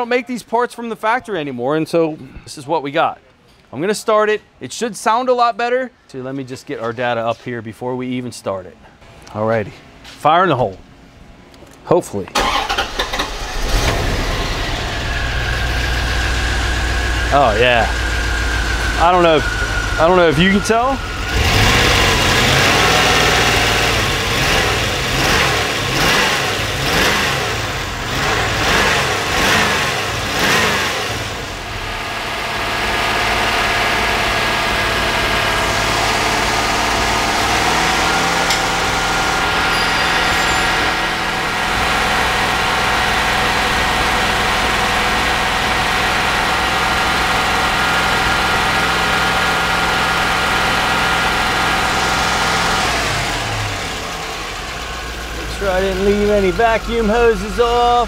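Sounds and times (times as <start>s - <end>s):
car engine revving: 12.4s - 58.0s.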